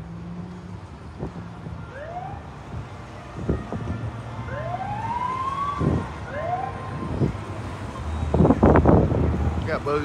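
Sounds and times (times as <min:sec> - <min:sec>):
siren whooping: 0:04.4 - 0:07.3
wind thumping on microphone: 0:08.3 - 0:09.7.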